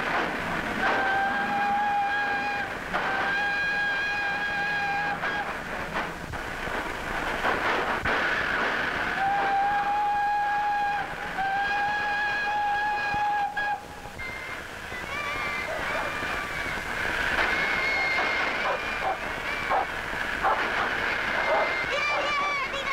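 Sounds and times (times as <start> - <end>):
moving train rumble: 0.0 - 22.9
train whistle blasts: 0.8 - 5.6, 8.2 - 16.8, 17.4 - 20.6.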